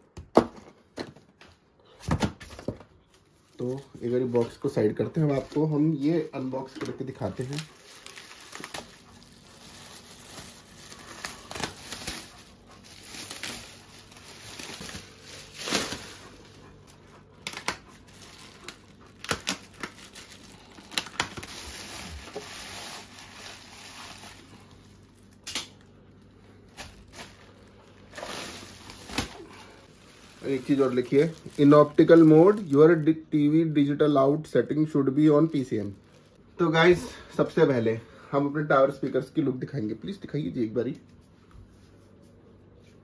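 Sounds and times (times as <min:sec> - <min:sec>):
plastic wrap crinkling and tearing: 0:03.0 - 0:37.0.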